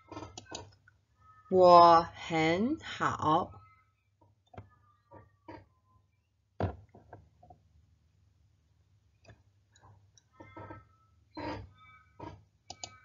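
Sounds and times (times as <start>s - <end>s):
faint clicks and knocks: 9.1s - 13.0s.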